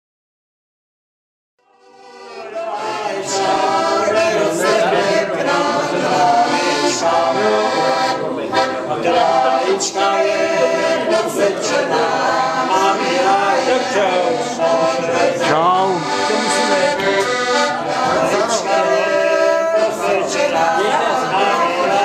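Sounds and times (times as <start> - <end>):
accordion: 1.6 - 22.0
group of people singing: 1.7 - 22.0.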